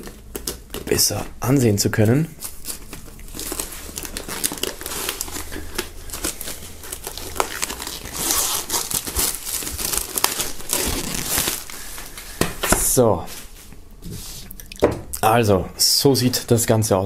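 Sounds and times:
plastic film crinkling and tearing: 0.0 - 1.2, 1.9 - 12.4.

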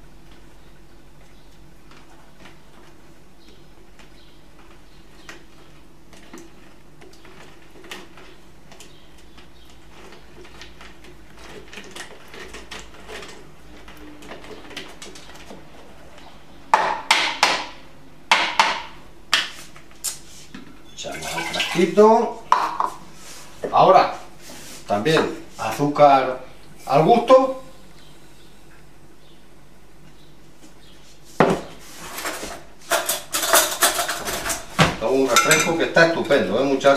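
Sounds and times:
juice pouring into jug: 21.1 - 22.0.

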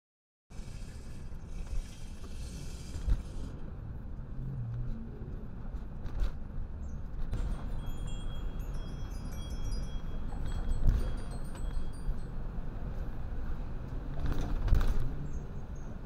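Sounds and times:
vehicle road and engine rumble: 0.5 - 16.0
faint high tinkling tones: 7.4 - 13.1.

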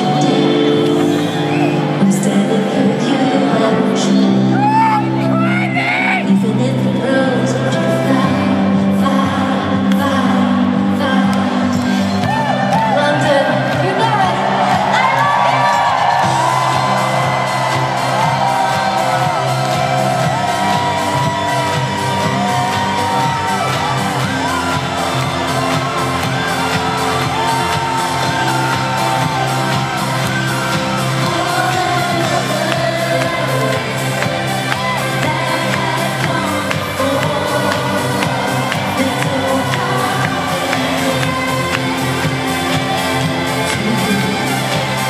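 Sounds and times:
crowd whooping: 0.0 - 2.5, 12.3 - 45.0
woman singing: 0.0 - 15.6, 18.3 - 45.0
live pop song over loudspeakers: 0.0 - 45.0.

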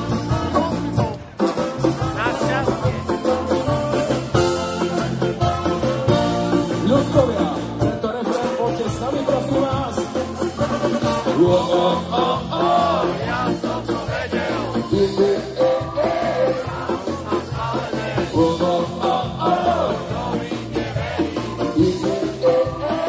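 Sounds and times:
bass line: 0.0 - 23.0
person singing: 11.2 - 20.4, 21.6 - 23.0.

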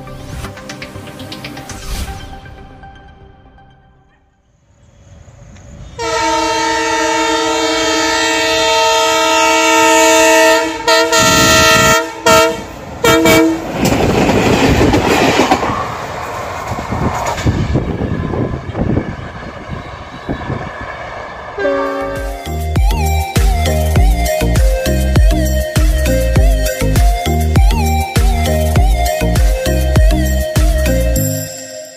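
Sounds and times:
train rumble and wheel clatter: 4.9 - 30.8
locomotive horn: 6.0 - 13.7, 21.6 - 22.6.

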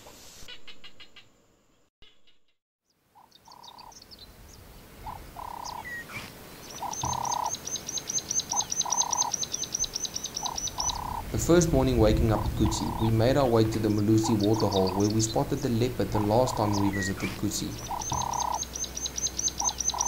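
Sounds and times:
fast high ticking call: 5.1 - 5.9, 6.7 - 20.0
two-note animal call: 6.8 - 7.6, 17.8 - 20.0.

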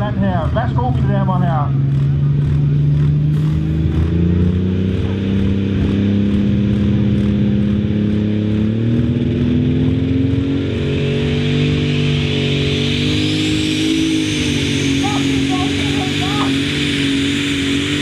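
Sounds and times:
diesel tractor engine under load: 0.0 - 18.0
high whine: 0.0 - 18.0.

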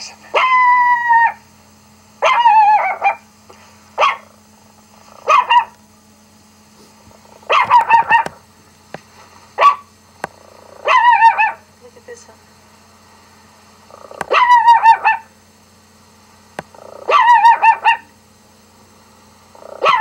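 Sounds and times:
dog barks through laptop speaker: 0.3 - 1.4, 2.2 - 3.3, 4.0 - 4.3, 5.2 - 5.8, 7.4 - 8.4, 9.6 - 9.9, 10.8 - 11.6, 14.2 - 15.3, 17.0 - 18.1, 19.8 - 20.0.

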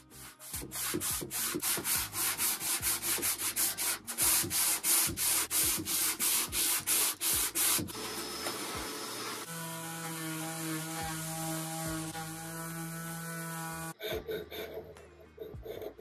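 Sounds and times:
sandpaper rasping on wood: 0.0 - 7.9.

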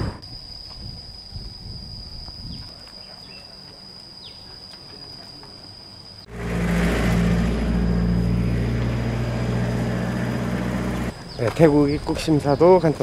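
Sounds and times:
insect buzz: 0.0 - 13.0
vehicle engine running: 6.3 - 11.4.

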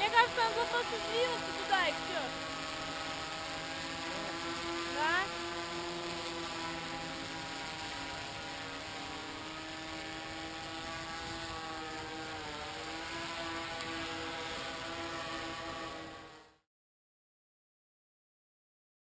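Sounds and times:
drone propellers whirring: 0.0 - 16.6.

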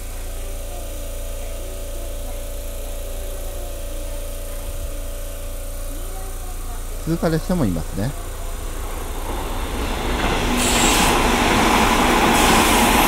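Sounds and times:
low electrical hum: 0.0 - 9.3.

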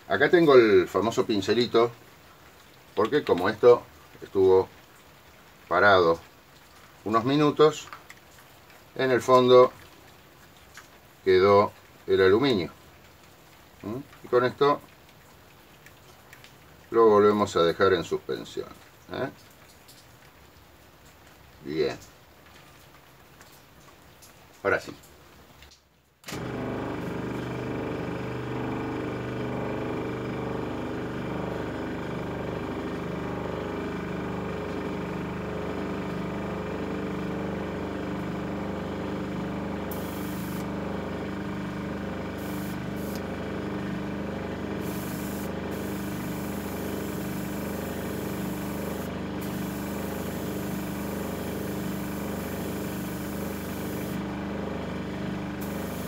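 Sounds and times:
air compressor humming: 26.2 - 56.0
airbrush spraying hiss: 39.9 - 40.7, 42.4 - 43.2, 44.8 - 54.2, 55.6 - 56.0.

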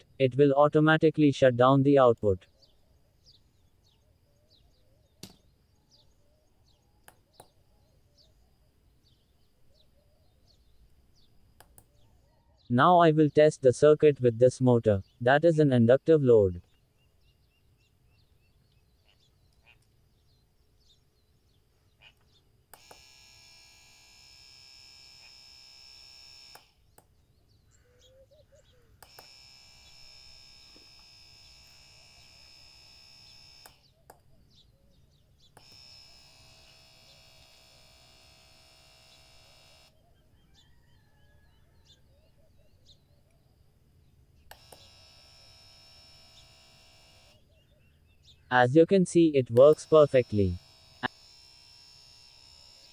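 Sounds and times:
small motor whining: 22.7 - 26.8, 29.0 - 34.0, 35.5 - 40.0, 44.5 - 47.4, 49.7 - 52.9.

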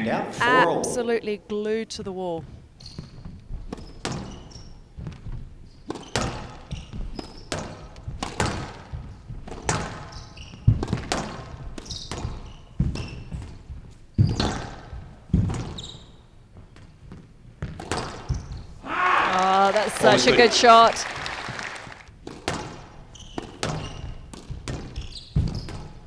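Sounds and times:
shoes squeaking on court floor: 2.4 - 18.8, 19.8 - 26.0
racket striking squash ball: 5.8 - 13.6, 17.6 - 18.6, 22.2 - 26.0.

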